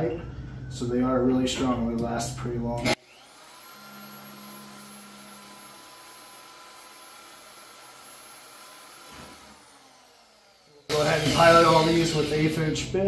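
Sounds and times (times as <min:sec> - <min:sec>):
electric drill drilling steel: 0:02.8 - 0:12.9.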